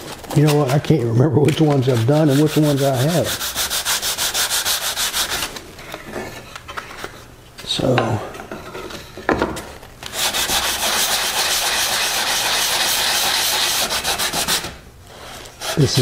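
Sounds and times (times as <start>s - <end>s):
sandpaper rubbing on wood: 1.6s - 5.5s, 10.1s - 14.8s, 15.6s - 16.0s.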